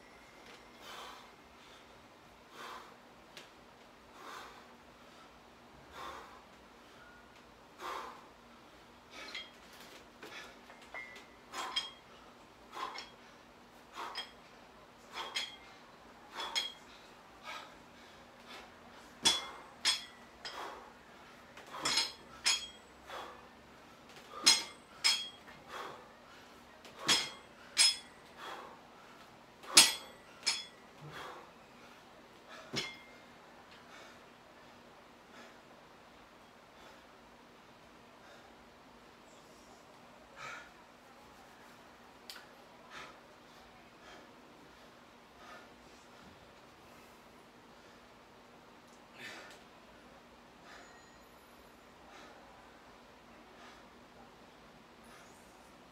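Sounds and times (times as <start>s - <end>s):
man breathing hard: 0.7s - 3.2s, 4.0s - 7.1s, 7.7s - 33.0s, 49.1s - 49.7s
dumbbell plates clinking: 9.1s - 13.2s, 13.9s - 17.7s, 19.2s - 20.8s, 21.6s - 23.4s, 24.3s - 26.0s, 26.9s - 28.7s, 29.6s - 31.4s, 32.6s - 33.3s.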